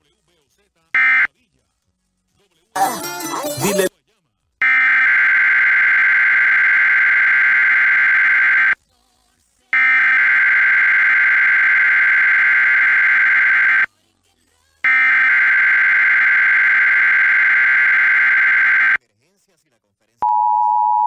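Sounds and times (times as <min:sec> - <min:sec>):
buzzing digital screech bursts: 0:02.8 - 0:03.9.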